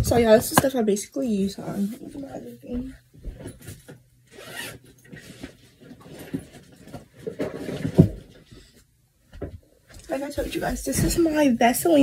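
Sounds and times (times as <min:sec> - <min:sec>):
toiletry items rustling and knocking: 0:05.0 - 0:08.7.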